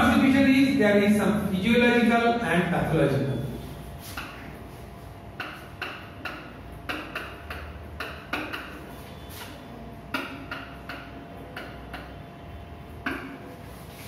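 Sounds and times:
marker squeaking on whiteboard: 0:03.7 - 0:04.7, 0:05.4 - 0:12.3.

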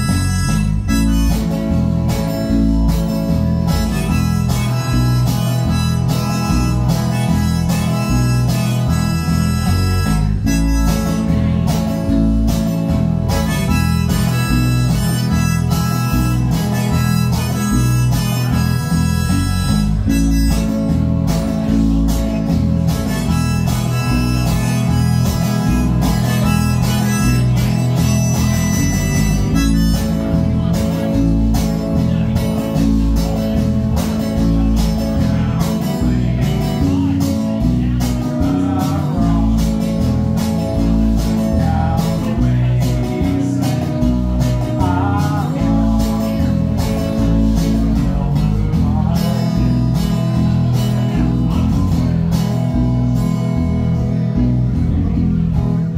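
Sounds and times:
plucked string instrument: 0:00.0 - 0:55.9
strummed acoustic guitar: 0:00.0 - 0:55.9.

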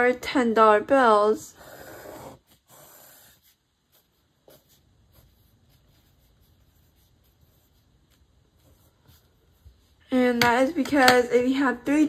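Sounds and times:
pencil scratching on paper: 0:01.6 - 0:10.0.

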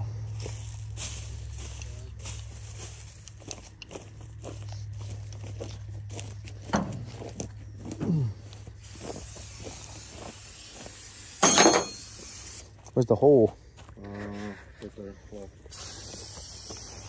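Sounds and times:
footsteps crunching through stubble: 0:00.0 - 0:11.4, 0:12.2 - 0:17.0
low machine hum: 0:00.0 - 0:12.9.

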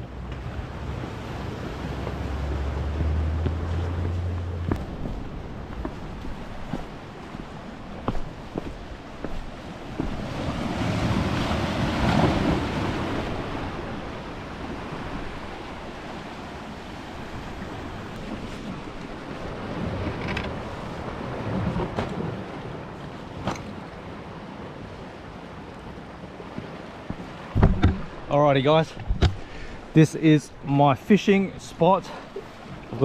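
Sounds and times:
waves washing against rocks: 0:00.5 - 0:33.0
short knocks: 0:27.5 - 0:28.2.

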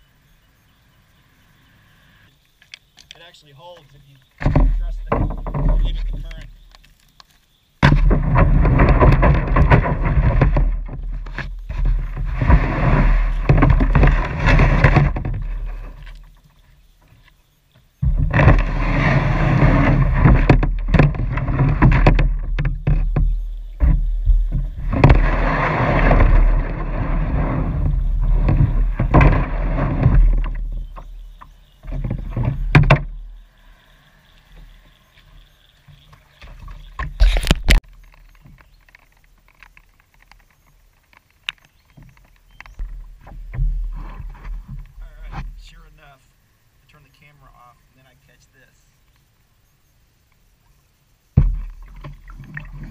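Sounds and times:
knocks on boat: 0:04.4 - 0:06.4, 0:07.8 - 0:15.6, 0:19.6 - 0:33.2, 0:51.4 - 0:52.1
wind and water rushing around boat: 0:08.2 - 0:16.1, 0:18.2 - 0:33.0.

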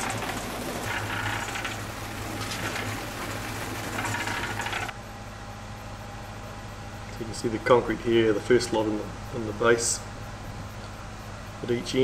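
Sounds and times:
wet concrete scraping and sliding: 0:00.0 - 0:04.9
low mechanical hum: 0:00.0 - 0:12.0.

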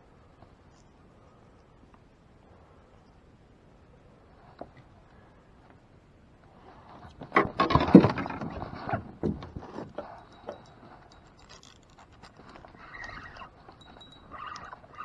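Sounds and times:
fishing gear and jacket rustling: 0:09.6 - 0:15.0.

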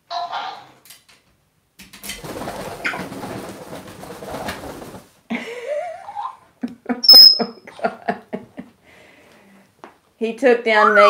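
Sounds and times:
parrot squawking: 0:00.1 - 0:00.8, 0:07.0 - 0:07.5, 0:10.7 - 0:11.0
parrot scuffling and flapping: 0:01.8 - 0:05.2
parrot short clipped calls: 0:07.1 - 0:07.5
piercing high whistle: 0:07.1 - 0:07.5.

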